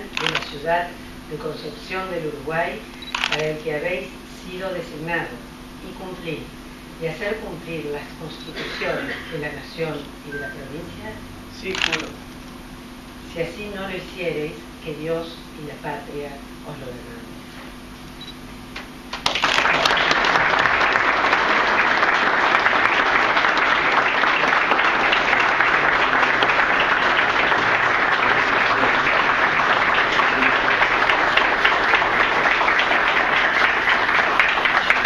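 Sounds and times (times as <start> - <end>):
audience applauding: 19.1 - 35.0.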